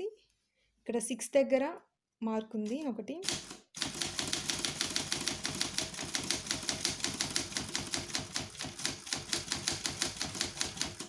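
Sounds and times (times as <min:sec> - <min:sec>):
typewriter typebars striking: 0:02.7 - 0:11.0.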